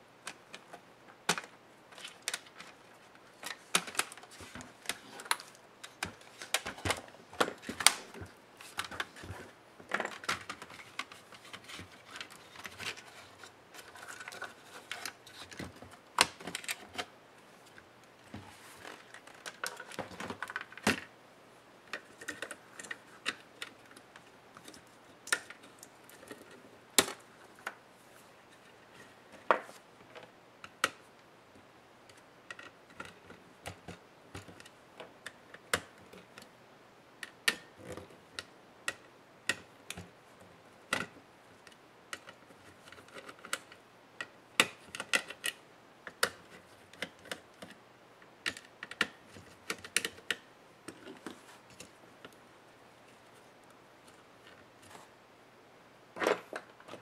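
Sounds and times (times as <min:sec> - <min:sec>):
laptop parts clicking and knocking: 0:00.3 - 0:02.8, 0:03.4 - 0:17.1, 0:32.1 - 0:36.5, 0:37.2 - 0:40.1, 0:40.9 - 0:47.8, 0:48.4 - 0:52.4.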